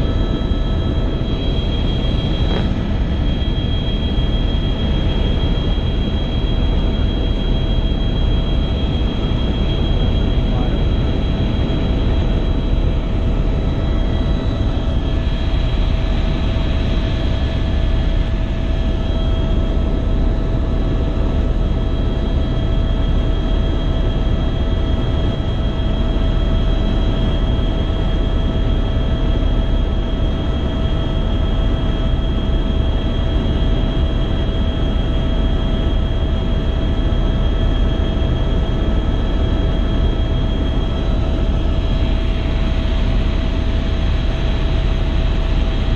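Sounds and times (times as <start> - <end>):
high whine: 0.0 - 28.8
helicopter rotor and engine rumble: 0.0 - 45.9.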